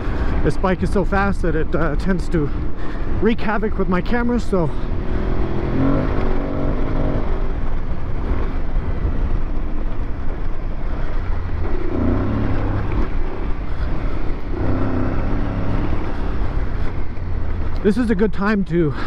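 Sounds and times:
wind noise on microphone: 0:00.0 - 0:18.0
motorcycle engine revving: 0:04.5 - 0:17.9.

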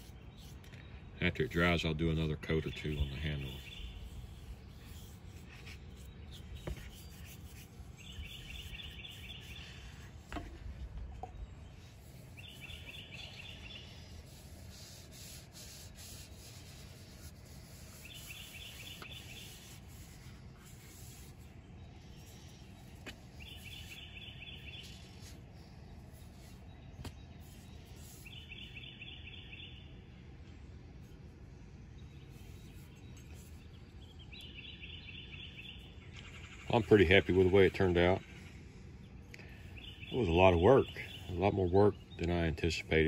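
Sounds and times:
cloth and brush rubbing wood: 0:02.8 - 0:11.1, 0:11.8 - 0:21.5, 0:22.1 - 0:28.6.

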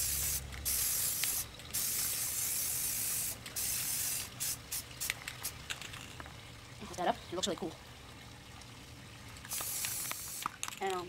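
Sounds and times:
spray paint can hissing: 0:00.0 - 0:05.8, 0:09.5 - 0:10.8.

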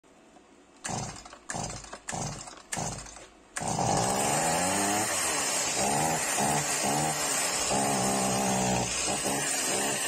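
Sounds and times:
starter cord cranking: 0:00.8 - 0:04.5
chainsaw engine running: 0:00.8 - 0:10.0.

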